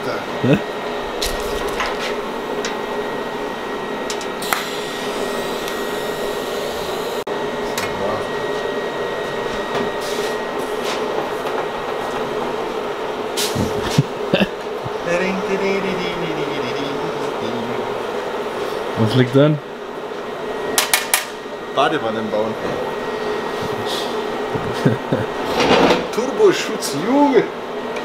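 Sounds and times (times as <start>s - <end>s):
motor whirring and hissing: 4.1s - 7.2s.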